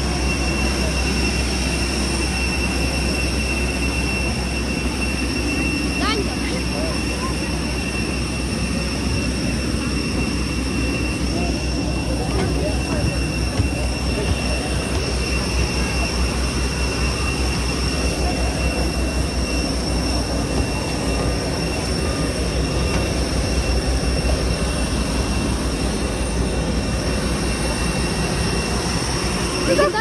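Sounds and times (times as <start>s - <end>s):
airliner cabin rumble: 0.0s - 30.0s
thin steady high tones: 0.0s - 30.0s.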